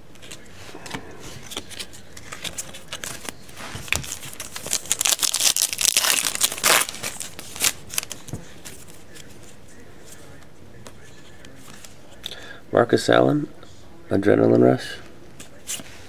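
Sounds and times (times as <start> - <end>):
foil wrapper tearing and crinkling: 4.1 - 8.2.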